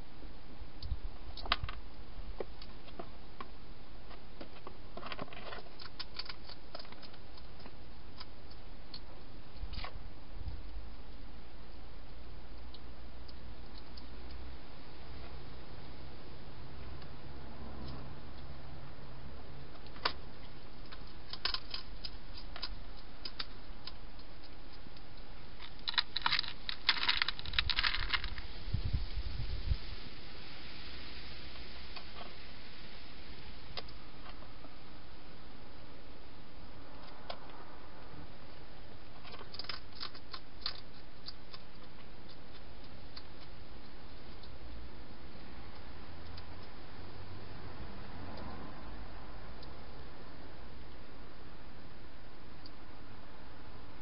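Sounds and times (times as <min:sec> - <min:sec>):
steady hiss: 0:00.0 - 0:54.0
hedgehog eating clicks and crunches: 0:04.1 - 0:10.0, 0:19.8 - 0:28.4, 0:39.2 - 0:44.7.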